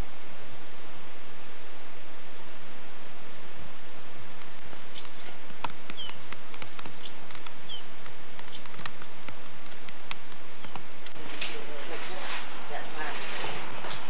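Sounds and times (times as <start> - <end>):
steady hiss: 0.0 - 14.0
faint clicks: 4.4 - 11.6
high bird-like chirps: 4.9 - 6.3.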